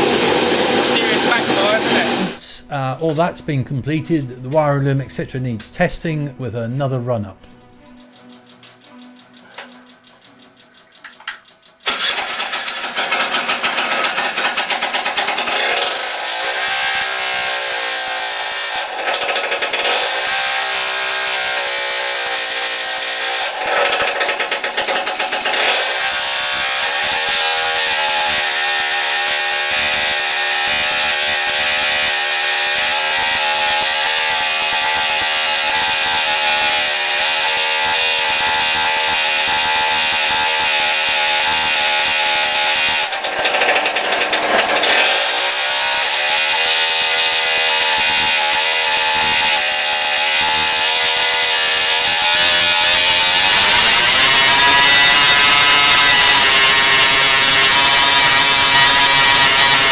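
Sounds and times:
engine revving: 0:00.0 - 0:02.4, 0:23.1 - 0:59.9.

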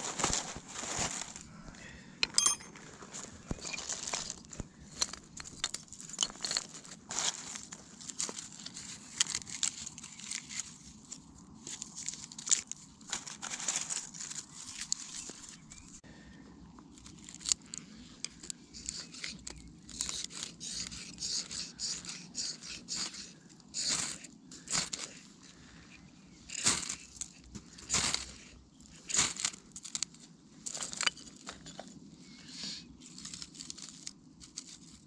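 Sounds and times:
pebbles crunching: 0:00.0 - 0:16.0, 0:33.0 - 0:35.0
wood sticks clacking: 0:02.2 - 0:02.8
dry tinder rustling: 0:03.7 - 0:16.0.

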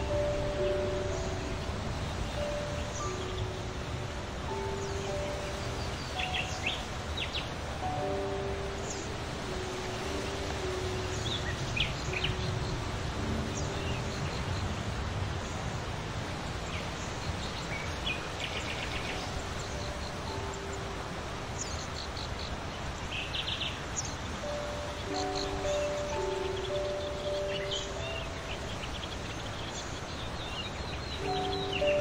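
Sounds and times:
faint melody of held notes: 0:00.0 - 0:22.0, 0:23.8 - 0:32.0
outdoor noise: 0:00.0 - 0:32.0
small birds chirping: 0:00.0 - 0:32.0
bird trills: 0:04.5 - 0:14.6, 0:24.4 - 0:30.0.

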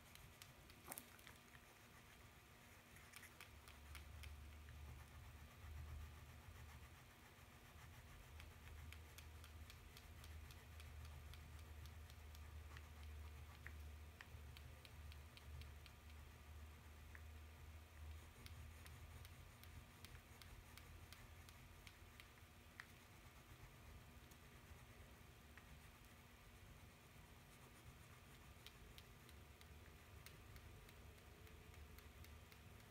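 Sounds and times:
low steady hum: 0:00.0 - 0:32.9
crayon scratching on paper: 0:01.6 - 0:13.6.

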